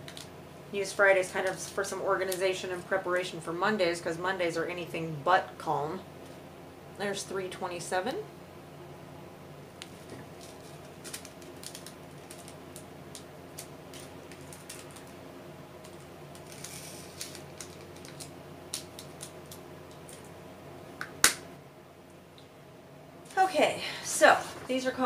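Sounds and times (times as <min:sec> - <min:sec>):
loud sharp plastic snap: 0:21.0 - 0:21.5.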